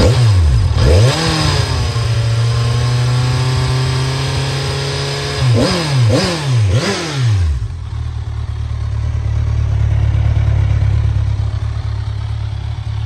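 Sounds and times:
motorcycle engine idling: 0:06.1 - 0:13.0.

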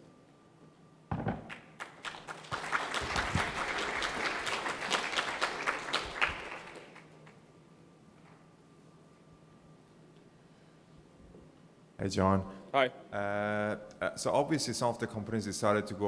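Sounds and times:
audience applauding: 0:01.5 - 0:07.4.

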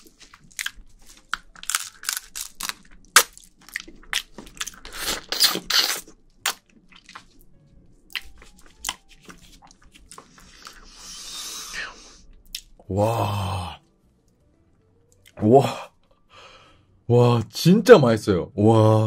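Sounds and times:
chewing: 0:00.0 - 0:07.5, 0:08.1 - 0:10.9
crab being bitten and sucked: 0:04.8 - 0:06.6.

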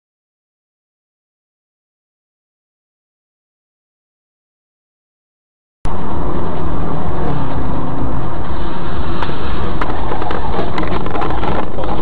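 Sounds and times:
car engine rumble: 0:05.9 - 0:12.0
road noise: 0:05.9 - 0:12.0.

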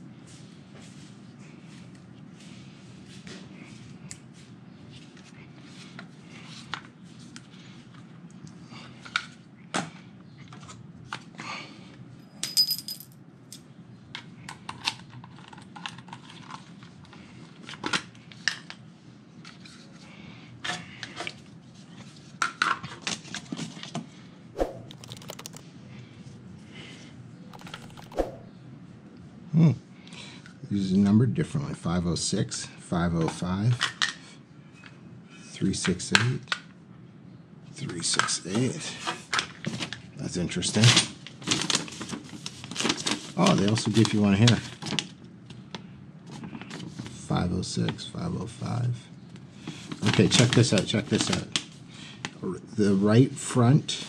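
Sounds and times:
hard plastic pieces clicking: 0:24.9 - 0:25.6, 0:27.6 - 0:28.2.

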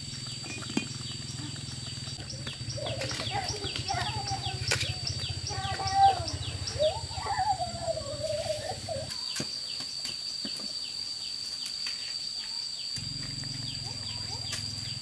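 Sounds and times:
wavering hum-like vocal sound: 0:02.6 - 0:09.1.

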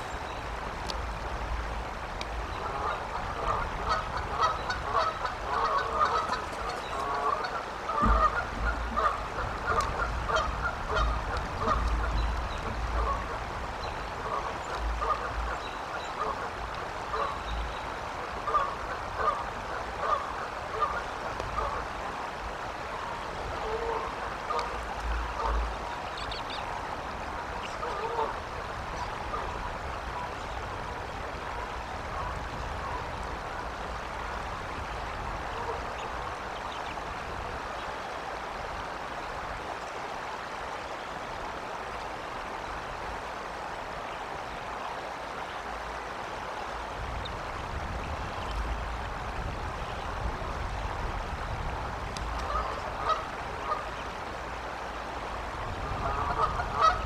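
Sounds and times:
steady outdoor hiss: 0:00.0 - 0:57.0
geese honking: 0:02.5 - 0:13.4, 0:14.2 - 0:17.6, 0:18.4 - 0:19.4, 0:20.0 - 0:21.8, 0:27.6 - 0:28.4, 0:52.4 - 0:54.0, 0:55.9 - 0:57.0.

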